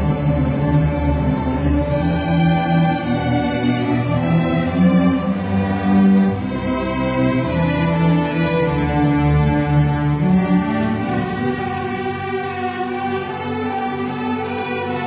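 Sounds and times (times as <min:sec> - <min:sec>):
string orchestra playing: 0:00.0 - 0:15.0.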